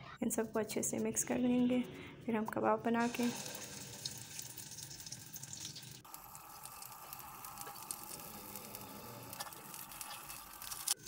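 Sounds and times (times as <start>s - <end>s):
oil sizzling in frying pan: 3.0s - 11.0s.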